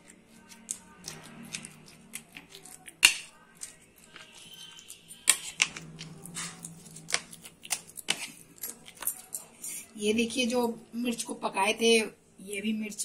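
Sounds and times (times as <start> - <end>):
spoon scraping ceramic plate: 4.0 - 7.4.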